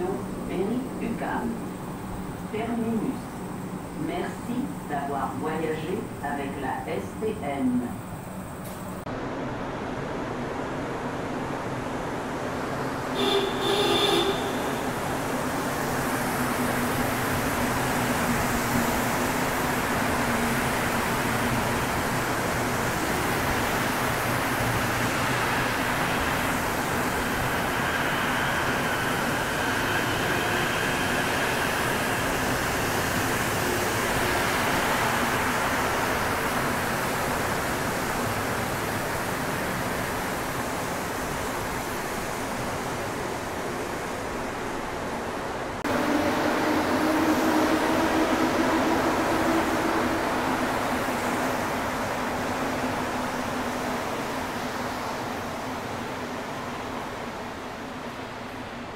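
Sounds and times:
subway train running past: 0.0 - 58.9
high-pitched whine: 45.9 - 53.1.

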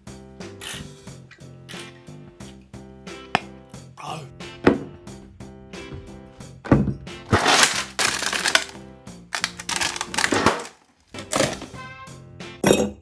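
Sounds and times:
background music: 0.0 - 13.0
freezer drawer rustling and clatter: 7.3 - 8.7, 9.6 - 11.7.

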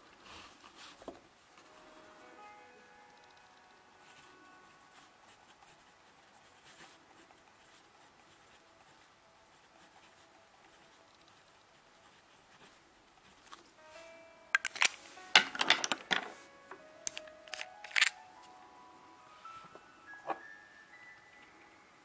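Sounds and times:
pen nib scratching on paper: 4.0 - 13.7.

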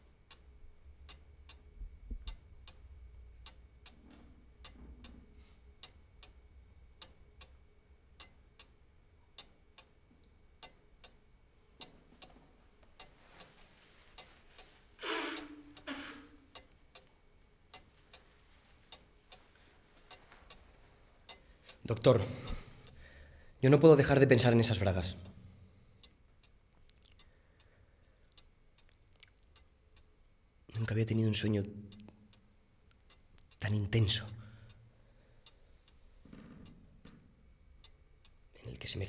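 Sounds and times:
mantel clock ticking: 0.2 - 1.7, 10.6 - 12.4, 13.0 - 18.3, 18.9 - 23.0.

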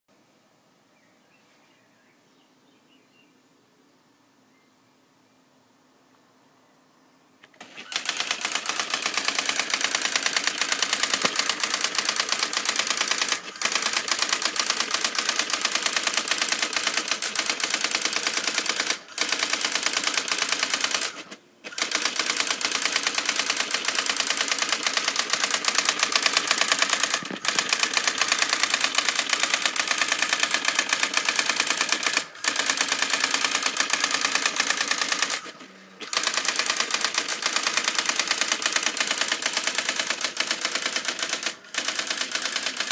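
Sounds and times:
daisywheel printer clattering: 7.6 - 42.9.

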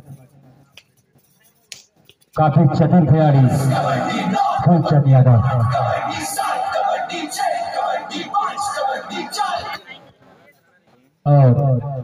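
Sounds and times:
person chanting sing-song: 3.2 - 10.1.

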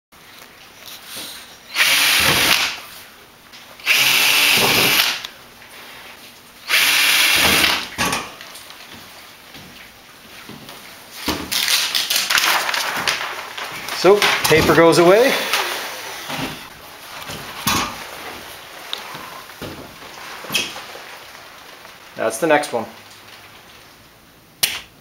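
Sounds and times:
cordless drill boring: 1.7 - 2.8, 3.8 - 5.2, 6.6 - 7.9, 15.2 - 16.7.

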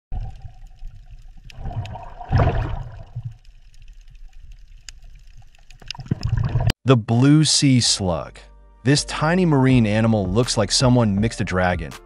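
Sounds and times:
water bubbling: 0.1 - 6.7
rush of water: 0.2 - 3.4.

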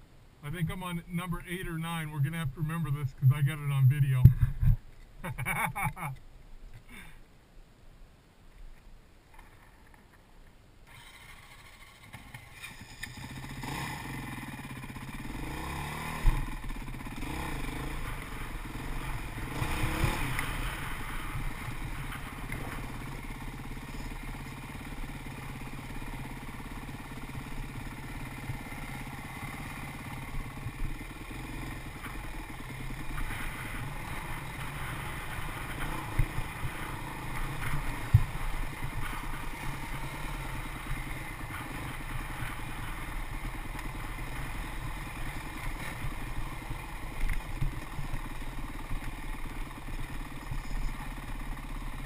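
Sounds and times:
dirt bike engine revving: 10.9 - 52.0.

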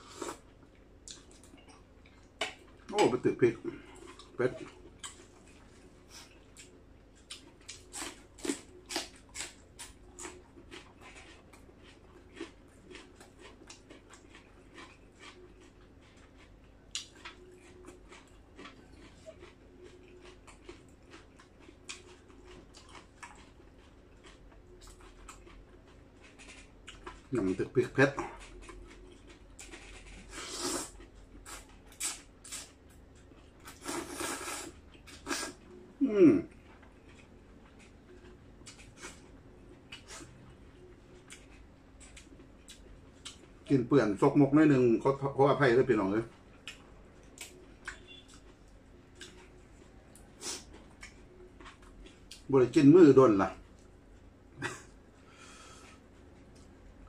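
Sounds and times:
chewing crisp cucumber: 0.0 - 55.0
person slurping noodles: 30.2 - 32.7, 33.7 - 36.4.

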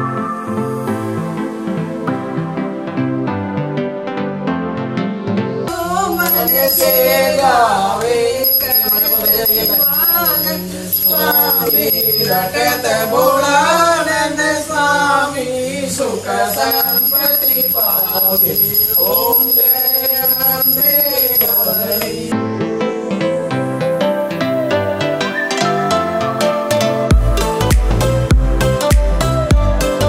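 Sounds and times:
devotional singing: 5.7 - 23.7
hand bell ringing: 6.0 - 7.5, 8.4 - 13.4, 16.6 - 22.3.

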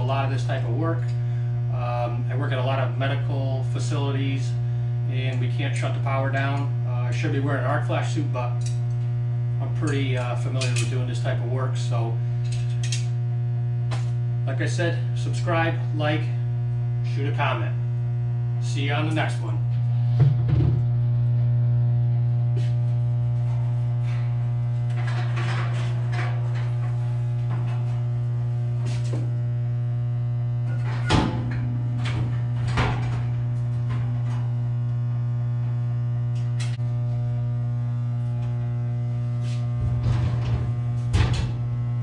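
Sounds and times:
electrical mains hum: 0.0 - 42.0
metal panel cover clanking: 30.7 - 34.5.

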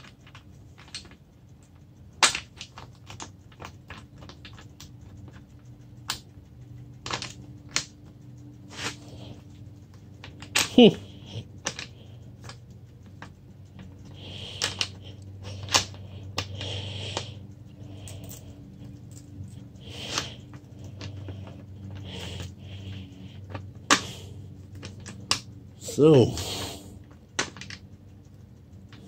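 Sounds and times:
steady low hum: 0.0 - 29.0
bicycle saddle clicks and scrapes: 6.9 - 25.6.

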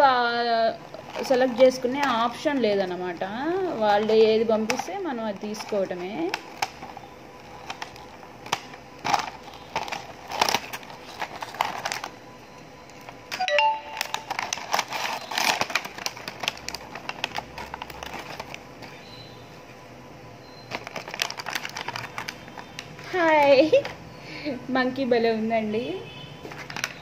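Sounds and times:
plastic packaging crinkling: 0.5 - 12.2, 13.0 - 19.3, 20.7 - 24.0, 26.4 - 27.0
short chime-like tone: 13.4 - 14.2.

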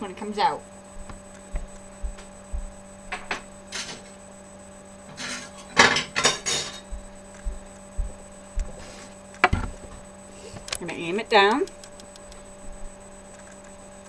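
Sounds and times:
faint steady hum: 0.0 - 14.0
dishes and cutlery clinking: 5.2 - 6.9.

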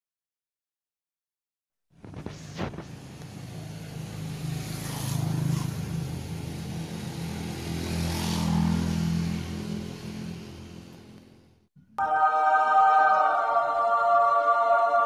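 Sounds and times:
passing road traffic hum: 2.0 - 11.7.

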